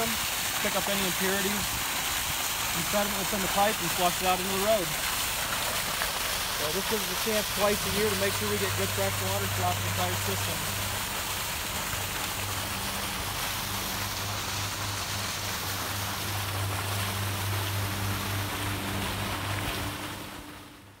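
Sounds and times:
water rushing from fire hydrant: 0:00.0 - 0:21.0
low hum: 0:12.2 - 0:21.0.

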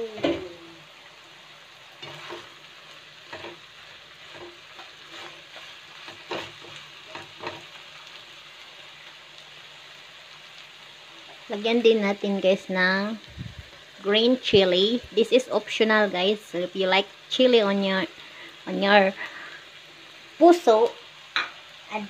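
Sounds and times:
food sizzling in a wok: 0:00.0 - 0:22.0
spatula scraping a wok: 0:01.9 - 0:07.8.

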